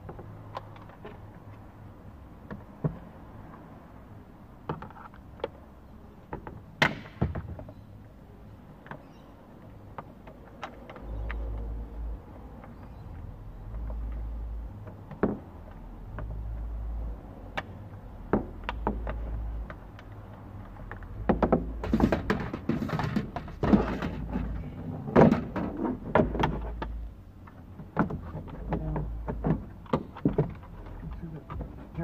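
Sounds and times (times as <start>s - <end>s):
plastic rattling and rubbing: 20.7s - 27.0s.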